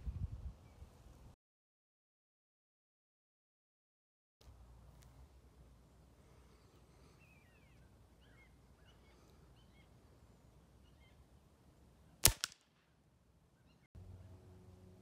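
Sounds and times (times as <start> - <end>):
air pistol shot: 12.2 - 12.9.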